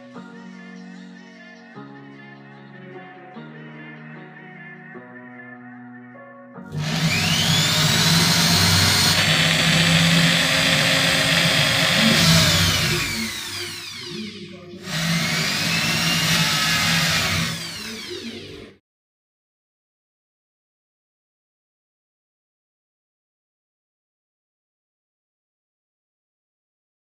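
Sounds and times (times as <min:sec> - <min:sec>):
electric drill whining: 0:06.7 - 0:18.8.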